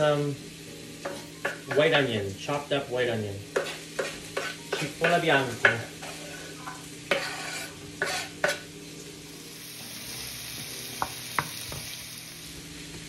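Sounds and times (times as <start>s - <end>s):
onion sizzling in frying pan: 0.0s - 13.0s
wooden spoon knocking on pan: 1.0s - 1.9s, 3.6s - 5.9s, 10.6s - 12.0s.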